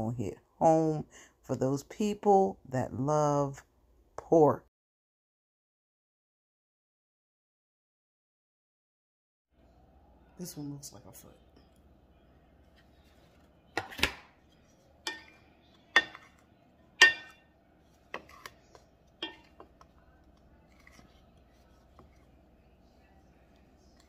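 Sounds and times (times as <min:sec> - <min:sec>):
wooden fork knocking glass bowl: 0:15.0 - 0:16.4, 0:17.0 - 0:17.5, 0:18.1 - 0:20.0.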